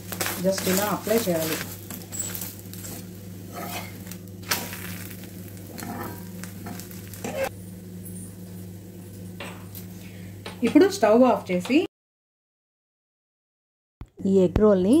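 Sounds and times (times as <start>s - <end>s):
egg sizzling on a hot griddle: 0.0s - 10.5s
steady low hum: 0.0s - 11.9s.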